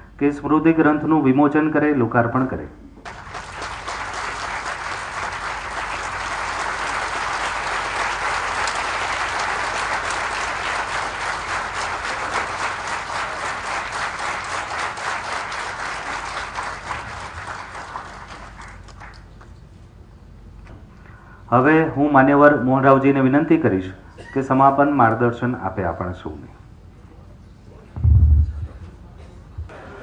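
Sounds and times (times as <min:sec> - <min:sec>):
audience applauding: 0:03.0 - 0:19.6.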